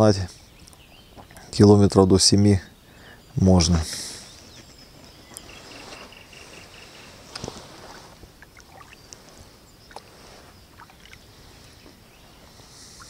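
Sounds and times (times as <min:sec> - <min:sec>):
paddle splashes and drips: 0:08.2 - 0:11.4.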